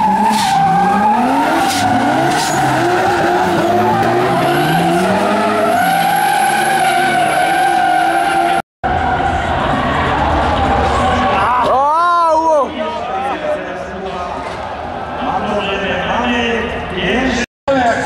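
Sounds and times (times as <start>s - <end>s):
car engines revving: 0.0s - 11.7s.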